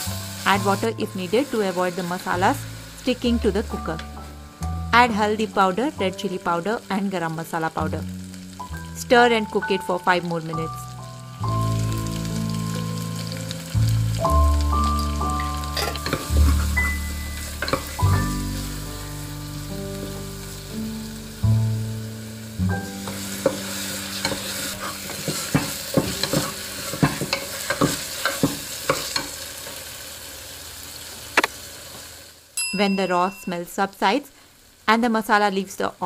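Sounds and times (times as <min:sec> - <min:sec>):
soft background music: 0:00.0 - 0:28.0
spices sizzling in oil: 0:00.0 - 0:36.0
spatula scraping a pot: 0:24.2 - 0:28.5.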